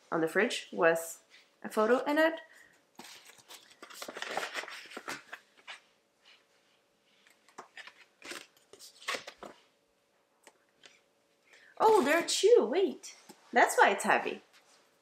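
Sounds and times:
packaging rustling and crinkling: 0:03.0 - 0:05.8, 0:07.2 - 0:09.7.

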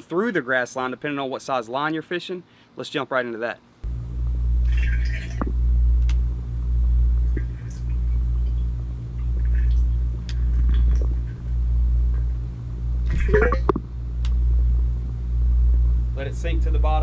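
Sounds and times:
muffled underwater rumble: 0:03.9 - 0:16.1.

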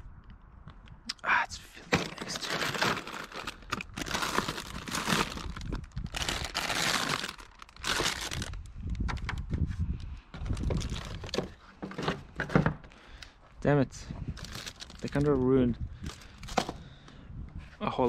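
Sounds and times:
plastic packaging crinkling: 0:01.9 - 0:08.6, 0:10.4 - 0:11.5, 0:14.4 - 0:15.4.

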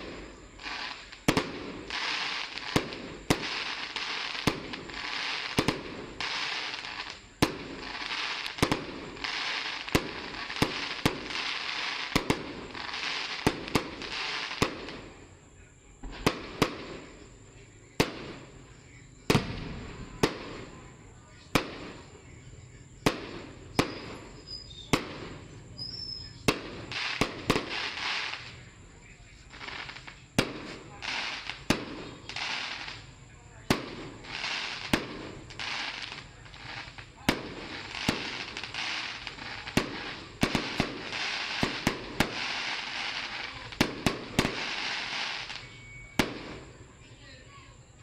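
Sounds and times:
fireworks bangs: 0:00.0 - 0:47.8
rushing hiss of fireworks: 0:00.0 - 0:48.0.

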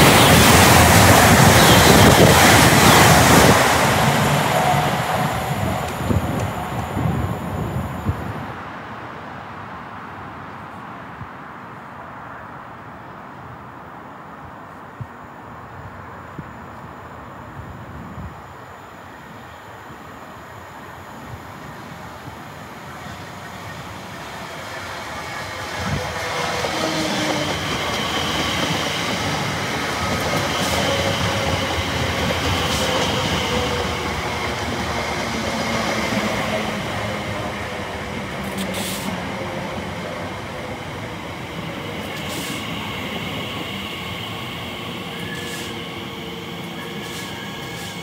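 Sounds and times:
train wheels rumbling on rail: 0:00.0 - 0:08.5, 0:22.2 - 0:48.0
train whining tones: 0:00.0 - 0:08.6, 0:16.0 - 0:48.0.

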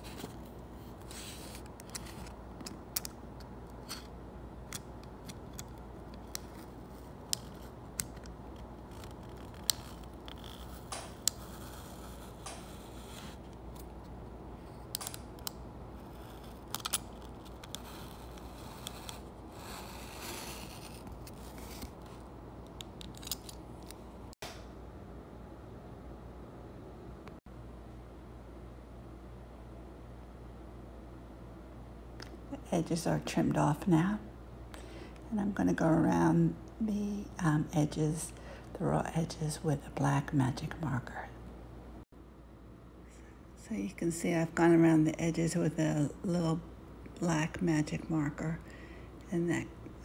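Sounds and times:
faint steady hum: 0:00.0 - 0:50.0
craft knife cutting paper: 0:06.2 - 0:13.4, 0:16.0 - 0:22.2.

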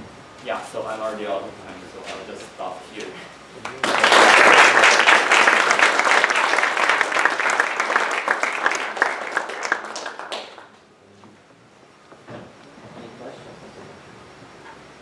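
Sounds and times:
audience applauding: 0:03.6 - 0:10.8.

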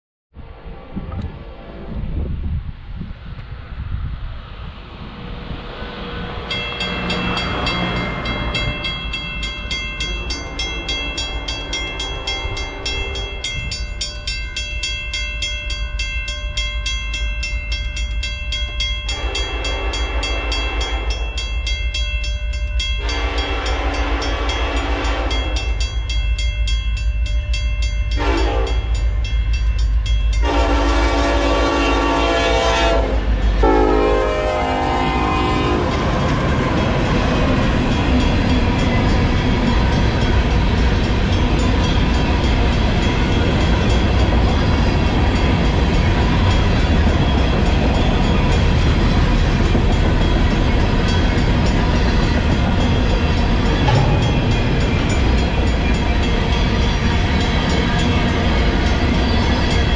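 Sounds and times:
diesel train rumble: 0:00.3 - 0:59.9
crossing bell ringing: 0:06.2 - 0:59.9
locomotive horn blasts: 0:19.1 - 0:21.2, 0:23.0 - 0:25.7, 0:28.1 - 0:28.9, 0:30.4 - 0:36.8.

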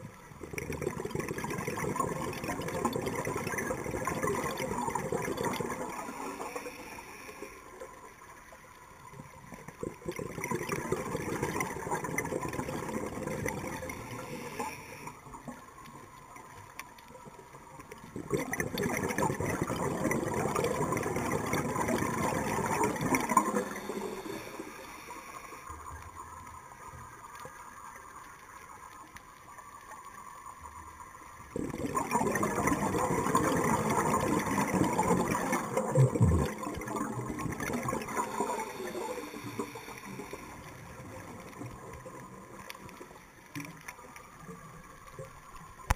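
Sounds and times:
exhaled bubbles gurgling underwater: 0:00.0 - 0:45.9
faint inhaling hiss: 0:05.8 - 0:08.2, 0:13.8 - 0:15.8, 0:23.3 - 0:26.2, 0:38.2 - 0:40.9.

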